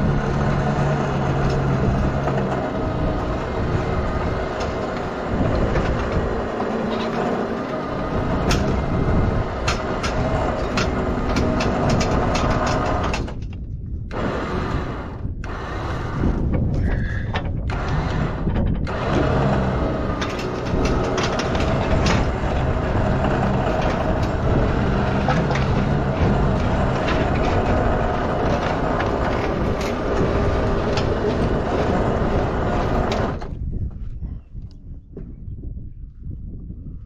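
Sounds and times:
heavy vehicle engine running: 0.0s - 33.6s
sharp metallic clicks and knocks: 4.4s - 8.8s, 9.6s - 14.3s, 16.3s - 33.6s.

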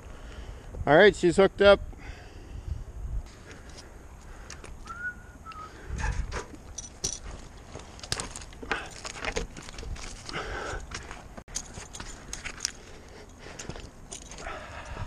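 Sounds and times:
short whistle: 4.8s - 5.8s.

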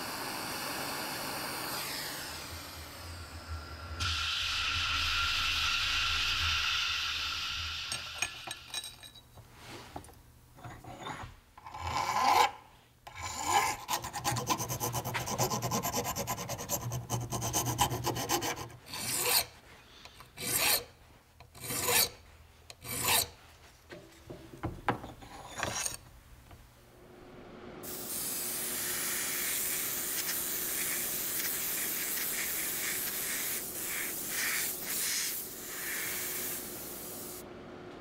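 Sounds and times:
blast gun hiss: 4.0s - 8.5s, 27.8s - 37.4s
hand file rasping on metal: 11.7s - 19.6s, 20.3s - 23.4s.

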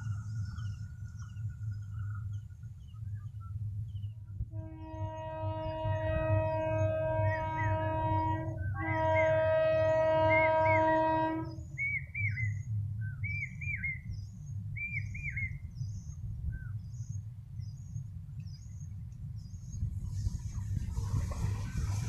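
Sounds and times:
low steady rumble: 0.0s - 22.0s
train running noise: 0.0s - 22.0s
train horn: 4.5s - 11.8s.

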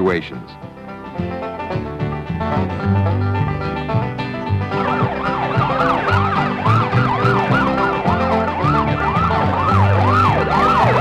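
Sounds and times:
bluegrass banjo music: 0.0s - 11.0s
emergency siren wailing: 4.6s - 11.0s.

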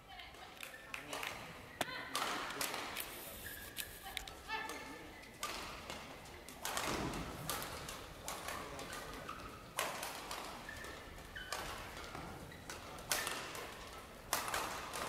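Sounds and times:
shoes squeaking on court: 3.0s - 4.2s, 10.6s - 13.3s
rackets hitting shuttlecock: 4.7s - 15.0s.

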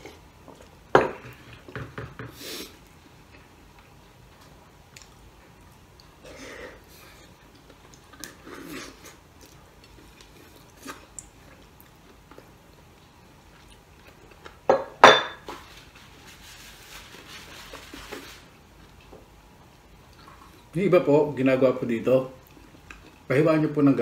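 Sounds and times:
man sucking and gnawing bone: 5.8s - 12.6s
tableware clinks: 14.7s - 15.4s.

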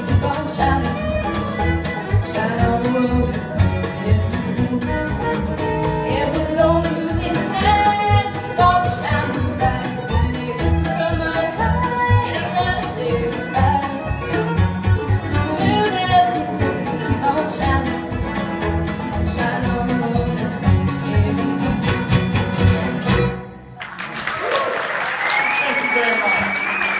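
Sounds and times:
bluegrass band playing: 0.0s - 24.2s
audience applause: 23.8s - 26.9s.

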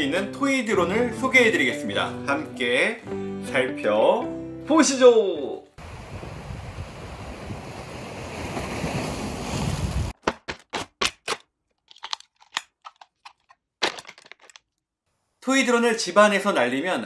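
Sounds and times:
plastic packaging crackling: 10.5s - 14.8s.

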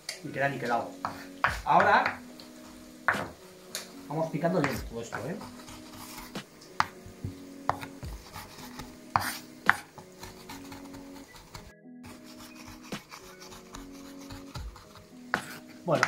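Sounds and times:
knife mincing on wooden board: 9.2s - 15.6s.

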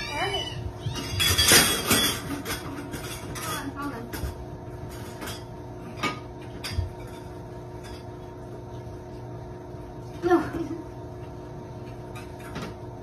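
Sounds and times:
metal pet bowls clinking: 0.8s - 8.1s.

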